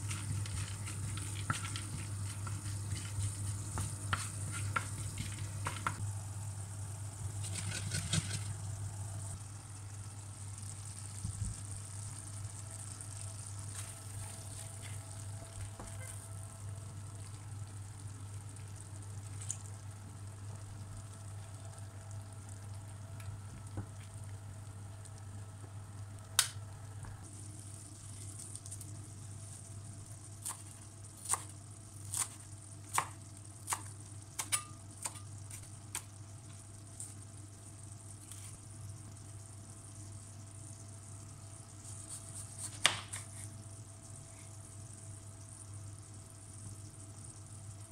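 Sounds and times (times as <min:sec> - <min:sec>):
seeds sizzling in oil: 0:00.0 - 0:47.9
knife chopping on cutting board: 0:03.6 - 0:06.0, 0:42.6 - 0:43.4.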